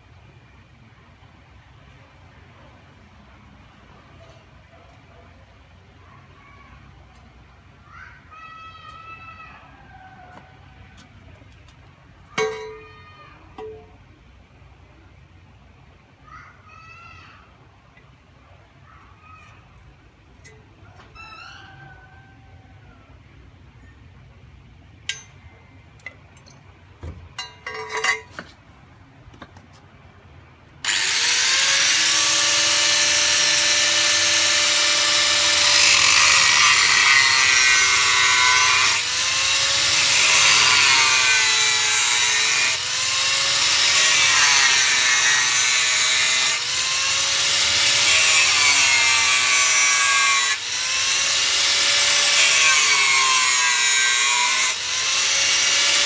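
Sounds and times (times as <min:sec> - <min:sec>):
metal pipe clinking: 0:12.4 - 0:12.8, 0:25.1 - 0:25.4, 0:27.4 - 0:28.4
angle grinder cutting steel: 0:30.8 - 0:56.0.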